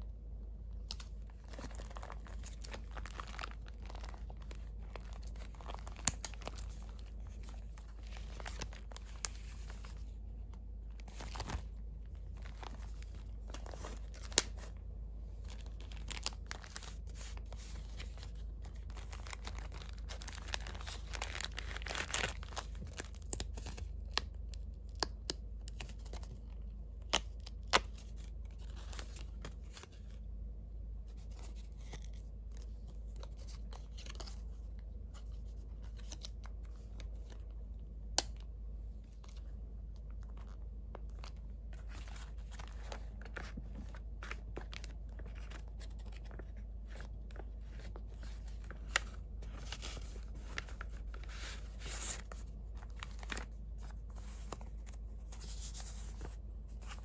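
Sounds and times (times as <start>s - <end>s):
low steady hum: 0.0s - 57.0s
plastic crinkling: 0.7s - 14.8s, 15.4s - 24.4s
paper rustling: 0.9s - 14.8s, 40.3s - 57.0s.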